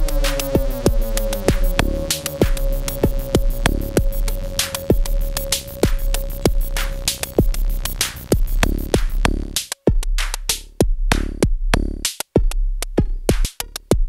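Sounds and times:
held synth tone: 0.0 - 9.1
drum machine beat: 0.0 - 14.0.

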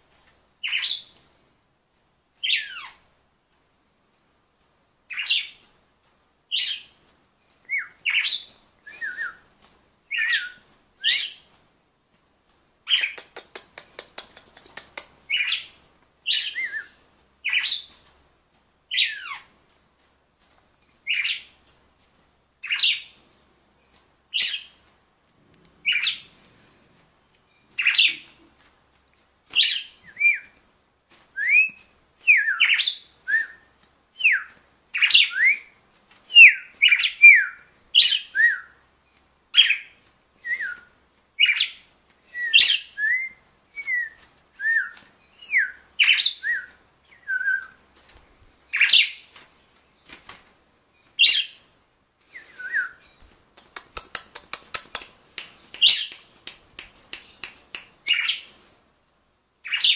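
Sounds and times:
bird clicks: 12.9 - 15.2, 53.2 - 58.2.

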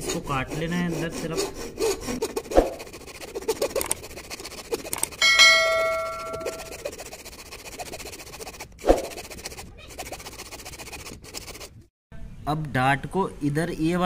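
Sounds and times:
hacksaw blade scraping wood: 0.0 - 11.9
bright bell-like ding: 5.2 - 6.7.

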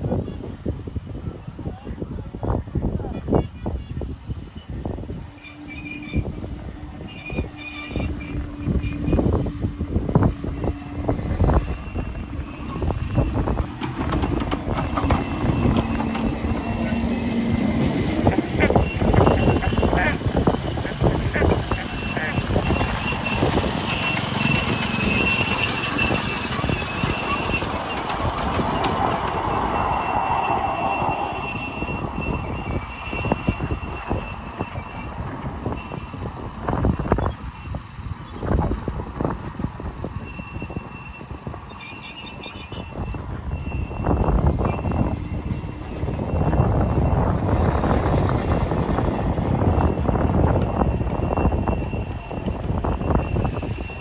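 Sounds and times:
wind rumble on microphone: 0.0 - 54.0
train wheels clattering over rail joints: 5.2 - 30.6.

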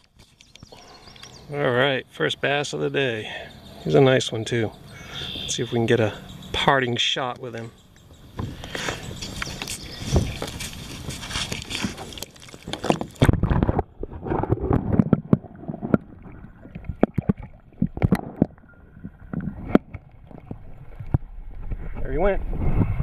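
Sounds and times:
water sloshing and splashing: 7.3 - 22.0
underwater knocks and clicks: 11.8 - 22.0
underwater gurgling: 12.0 - 21.8.

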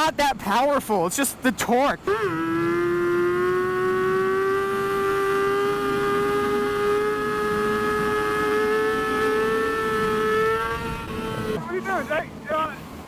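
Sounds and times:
wind and road noise: 0.0 - 13.0
motorcycle engine accelerating: 2.0 - 11.7.

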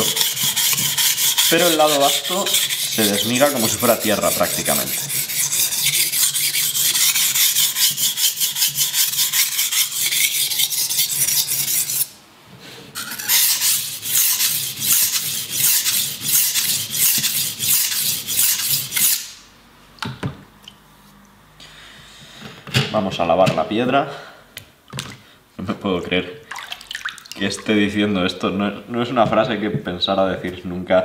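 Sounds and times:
knife scraping on whetstone: 0.0 - 12.1, 13.0 - 19.3.

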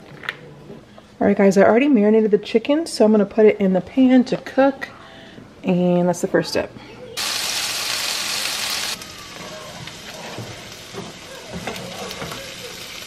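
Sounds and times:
chicken sizzling in frying pan: 7.2 - 13.0.

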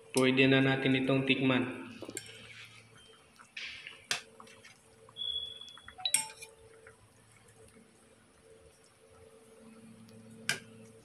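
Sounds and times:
spoon clinking on pot: 5.4 - 6.6.

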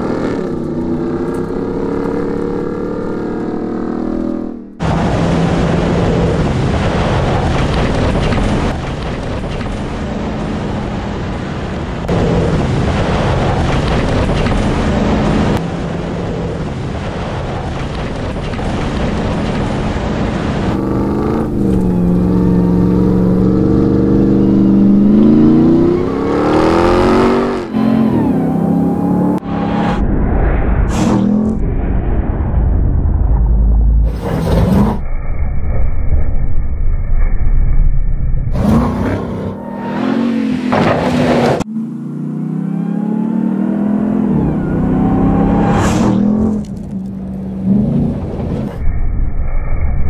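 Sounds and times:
truck engine revving: 0.0 - 8.9, 18.8 - 30.0, 38.6 - 48.8.

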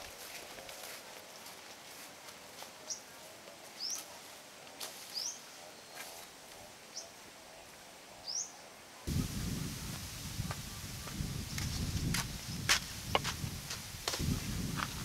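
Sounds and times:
bird chirping: 8.2 - 9.2
steady rushing noise: 9.1 - 15.0.

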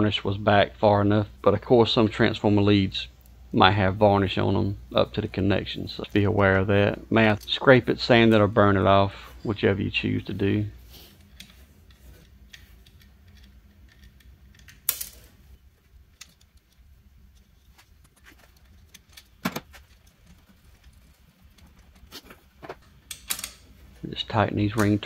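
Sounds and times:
metal hardware clicking and clinking: 11.2 - 23.8.

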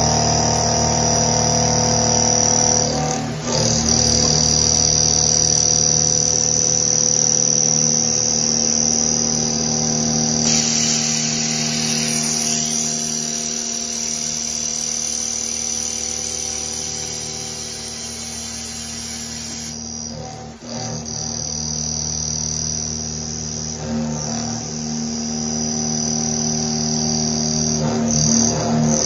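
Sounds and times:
milling machine whine: 0.0 - 29.0
cutting hiss: 10.4 - 19.8.

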